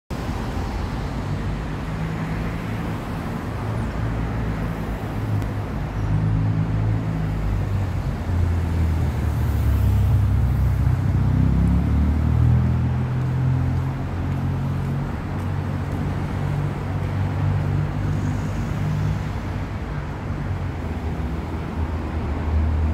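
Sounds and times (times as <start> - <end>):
passing traffic engine hum: 0.2 - 22.9.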